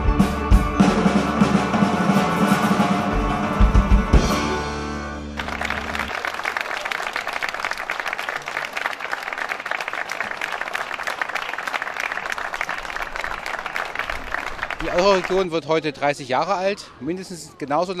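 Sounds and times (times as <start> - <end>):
strings and drums orchestra: 0.0 - 6.1
crowd applauding: 5.3 - 15.6.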